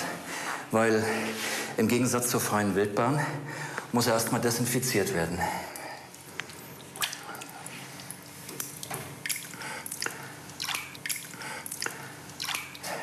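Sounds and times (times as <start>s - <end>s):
water splashing and dripping: 5.7s - 13.0s.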